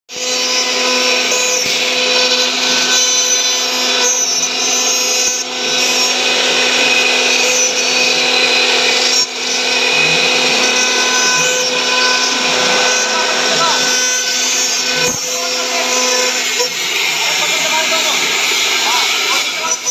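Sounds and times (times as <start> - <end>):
end mill rasping into wood: 0.1 - 19.9
router spindle whine: 0.1 - 19.9.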